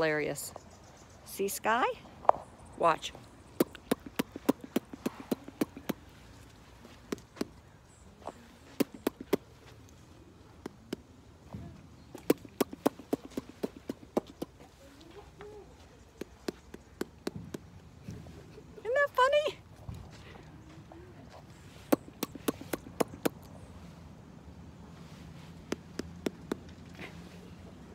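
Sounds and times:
horse making clicking noises: 0:03.6 - 0:06.1, 0:08.8 - 0:09.5, 0:12.1 - 0:14.7, 0:16.0 - 0:17.9, 0:21.9 - 0:23.5, 0:25.6 - 0:26.9.

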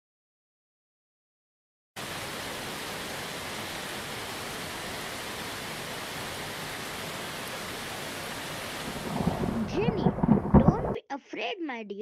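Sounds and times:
hiss of falling rain: 0:02.0 - 0:10.6.

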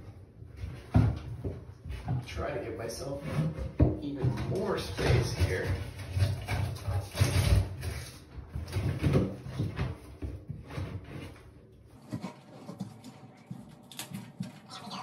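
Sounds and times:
foil duct crinkling and scraping: 0:04.5 - 0:13.8.

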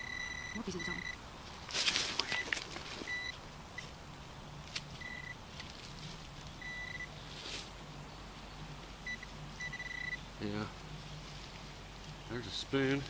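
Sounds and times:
metal detector beeps: 0:00.0 - 0:01.2, 0:03.1 - 0:03.4, 0:05.0 - 0:05.4, 0:06.6 - 0:07.1, 0:09.1 - 0:10.2.

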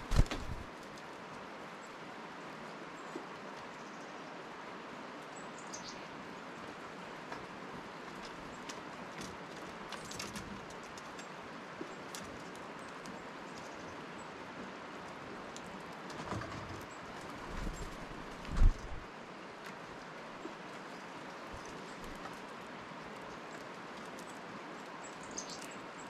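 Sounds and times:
soft low bumps: 0:00.0 - 0:00.7, 0:17.4 - 0:19.0
squirrels scrabbling on wood: 0:00.0 - 0:01.6, 0:06.6 - 0:26.0
outdoor hiss: 0:00.0 - 0:09.2.

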